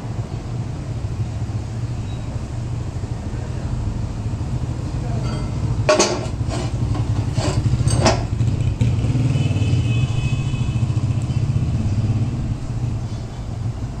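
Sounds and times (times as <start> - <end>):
rag rubbing a steel cup: 6.0 - 8.2.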